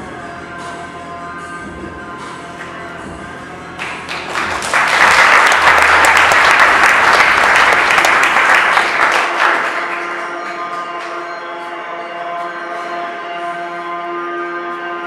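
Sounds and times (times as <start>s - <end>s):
background music: 0.0s - 15.0s
audience applause: 3.8s - 11.2s.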